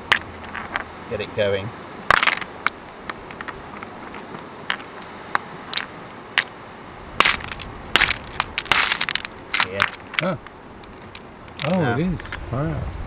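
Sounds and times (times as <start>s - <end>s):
steady background noise: 0.0s - 13.0s
flint knocking on stone: 2.1s - 4.9s, 7.2s - 11.9s.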